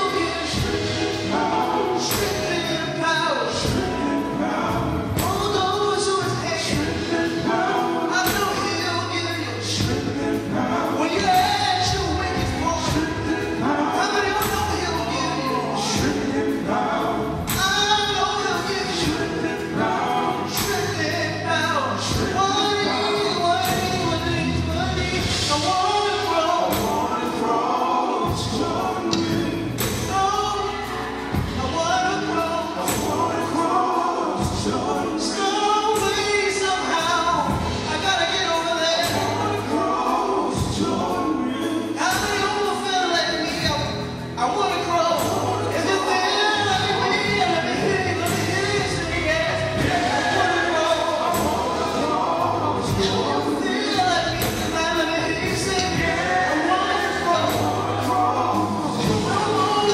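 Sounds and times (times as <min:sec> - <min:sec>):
bass guitar: 0:00.0 - 0:59.9
drum kit with cymbals: 0:00.0 - 0:59.9
live band playing: 0:00.0 - 0:59.9
male vocal group singing gospel: 0:00.0 - 0:59.9
drum hits: 0:05.0 - 0:05.7, 0:28.3 - 0:30.4, 0:48.2 - 0:53.6.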